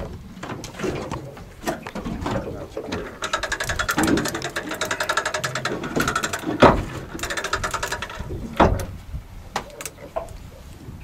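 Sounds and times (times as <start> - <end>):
reel ratchet clicking: 3.2 - 8.3
loud knocks: 5.7 - 9.0.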